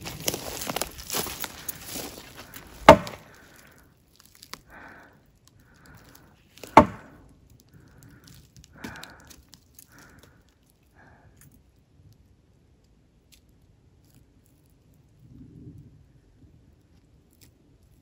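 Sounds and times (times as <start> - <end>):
wood knocking on tree trunk: 2.7 - 3.4, 6.6 - 7.1.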